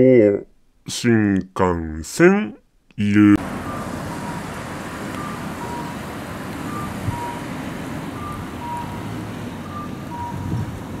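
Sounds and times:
road traffic passing: 3.1 - 11.0
two-note crossing signal beep: 3.6 - 4.5, 5.2 - 6.0, 6.7 - 7.5, 8.2 - 9.1, 9.7 - 10.6.

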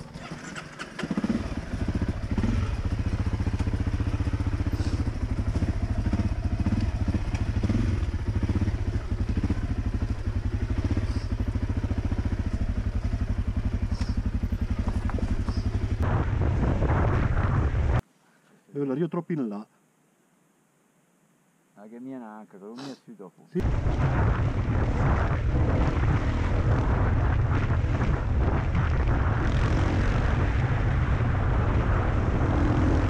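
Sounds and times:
dirt bike engine chugging: 0.0 - 16.5.

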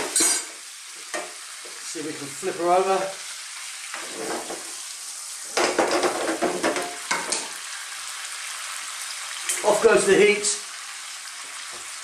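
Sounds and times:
fish sizzling in a frying pan: 0.0 - 12.0
spatula scraping a pan: 3.9 - 4.8.

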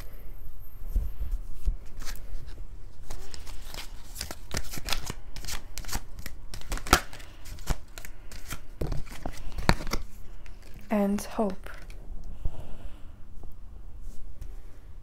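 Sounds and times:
cards being shuffled: 1.3 - 12.0.

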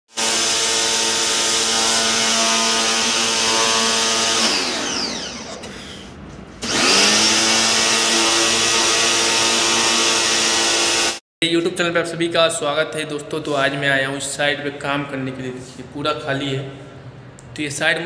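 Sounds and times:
pressure washer motor hum: 0.2 - 11.2.

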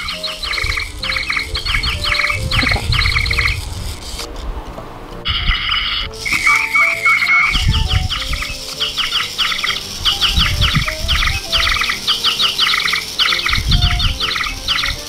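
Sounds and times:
toy birds electronic chirping: 0.0 - 4.2, 5.3 - 15.0
low thumps: 0.0 - 6.5.

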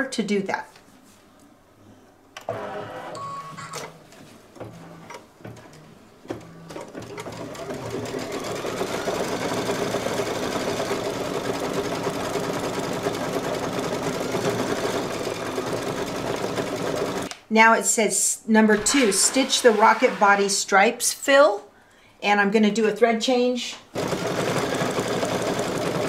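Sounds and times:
embroidery machine running: 7.2 - 17.3.

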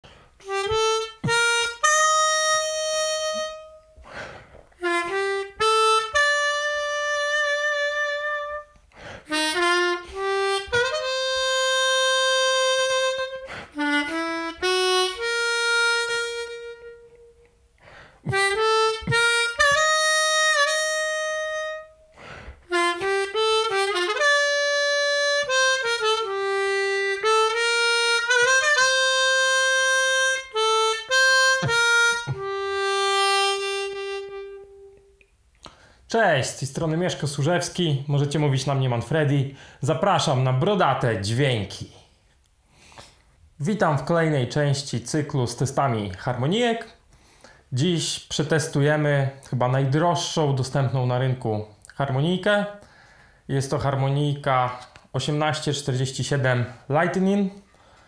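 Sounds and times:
harmonica playing: 0.0 - 35.2.

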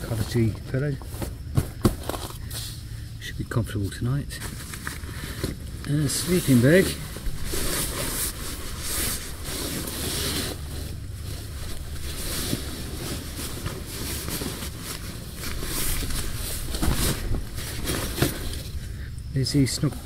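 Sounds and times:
sleeping bag rustling: 4.4 - 19.0.

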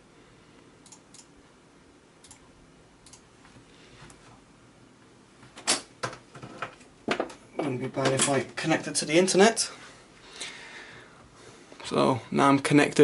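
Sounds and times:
low steady hiss: 0.0 - 13.0
computer mouse clicks: 0.8 - 1.3, 2.2 - 3.2.

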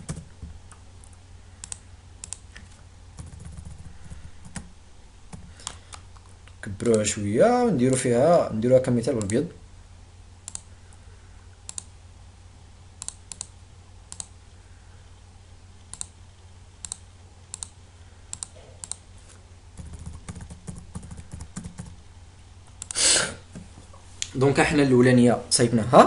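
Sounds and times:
keyboard typing: 0.0 - 4.7, 19.8 - 22.0
low hum: 0.0 - 25.9
computer mouse clicking: 0.7 - 3.9, 10.4 - 10.7, 11.7 - 11.9, 13.0 - 13.5, 14.1 - 14.3, 15.8 - 16.2, 16.8 - 19.0, 22.7 - 23.0.

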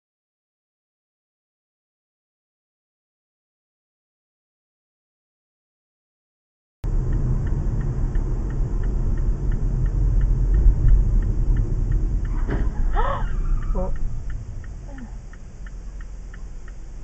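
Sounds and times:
engine and road rumble: 6.8 - 17.0
turn signal ticking: 6.8 - 17.0.

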